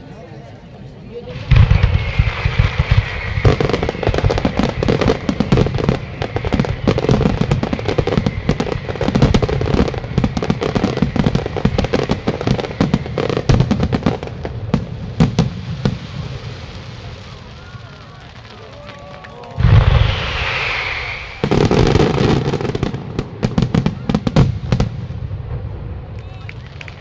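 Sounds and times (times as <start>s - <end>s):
fireworks bangs and crackling: 1.2s - 27.0s.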